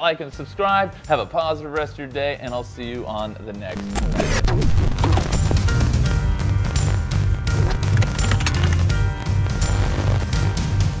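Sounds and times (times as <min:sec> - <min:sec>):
electronic music with heavy bass: 0:03.7 - 0:11.0.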